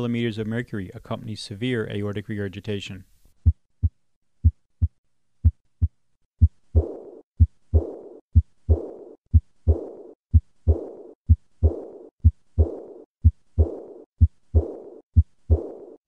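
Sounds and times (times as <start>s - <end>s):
blowing heart murmur: 3.4s - 15.8s
heartbeat thumps: 3.4s - 16.0s.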